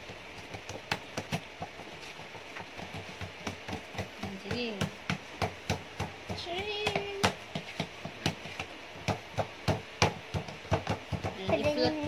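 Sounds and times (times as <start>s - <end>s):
hands slapping dough: 0.0s - 12.0s.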